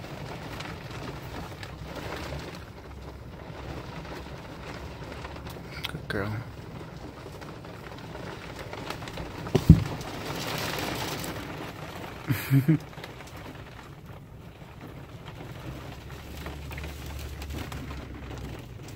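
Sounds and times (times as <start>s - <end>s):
knocks: 9.5s - 10.0s.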